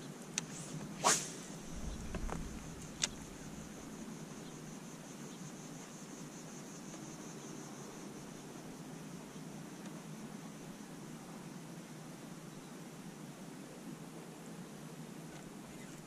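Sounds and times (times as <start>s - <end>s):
faint high hiss: 0.0s - 16.0s
fishing rod whoosh: 0.4s - 4.0s
soft low rumble: 1.5s - 4.6s.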